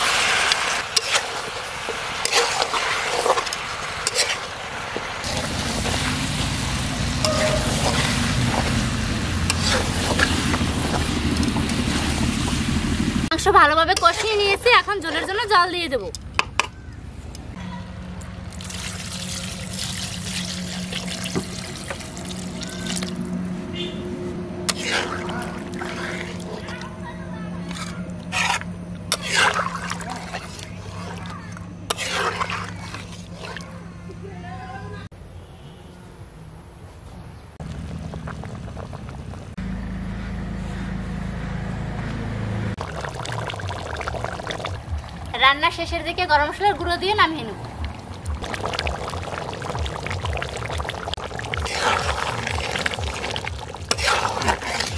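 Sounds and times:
water pouring into a pan: 18.5 - 23.2, 42.8 - 45.3, 48.4 - 54.9
curry bubbling in a pan: 24.7 - 26.6, 28.4 - 33.6, 42.8 - 45.3, 48.3 - 54.9.

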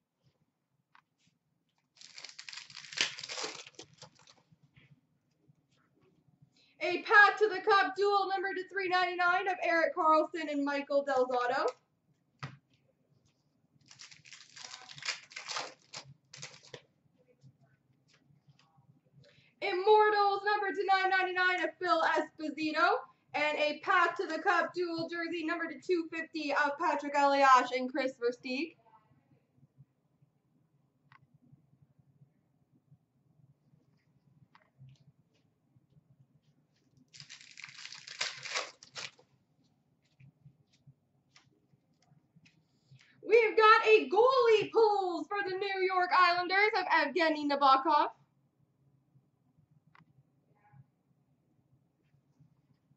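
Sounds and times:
wrapper tearing and crinkling: 2.0 - 4.4, 13.8 - 16.8, 37.1 - 39.2.

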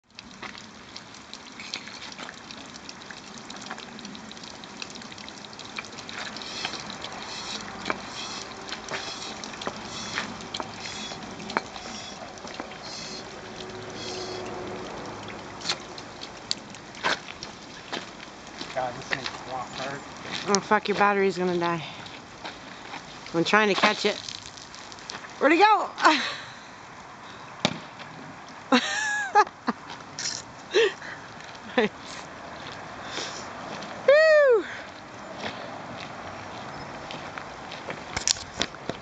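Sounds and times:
liquid trickling and bubbling: 0.0 - 25.5
pump clicks: 0.1 - 21.1, 38.1 - 39.0
floor pump hissing: 6.3 - 13.3, 13.9 - 14.5.

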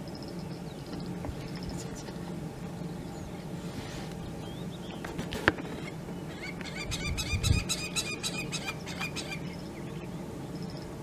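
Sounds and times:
steady low hum: 0.0 - 11.0
bird calling repeated notes: 4.4 - 10.1.

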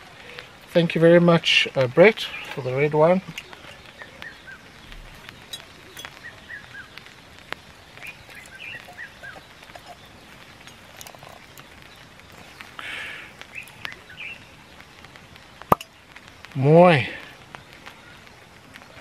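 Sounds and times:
bird chirps: 2.2 - 14.8
corkscrew clicking and scraping: 8.0 - 11.7.

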